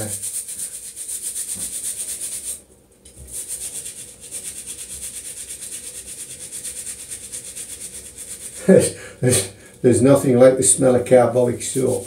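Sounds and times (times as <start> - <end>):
brush scrubbing wet hands: 0.0 - 2.6, 3.2 - 9.0, 11.0 - 12.0.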